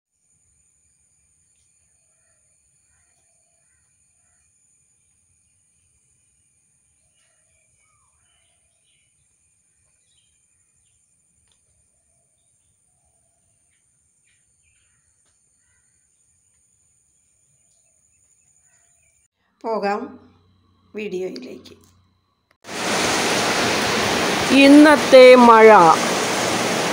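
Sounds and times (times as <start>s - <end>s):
bird calls and chirps: 6.8s - 16.6s, 17.2s - 19.3s.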